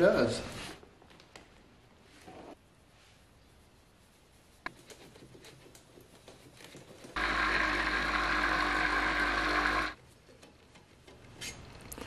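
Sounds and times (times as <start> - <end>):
electric orbital polisher running: 7.2 - 10.0.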